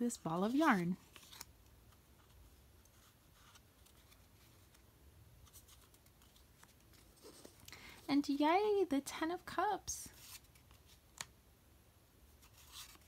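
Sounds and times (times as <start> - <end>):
paper cards rustling and clicking: 0.2 - 7.8, 10.1 - 11.3, 12.4 - 13.0.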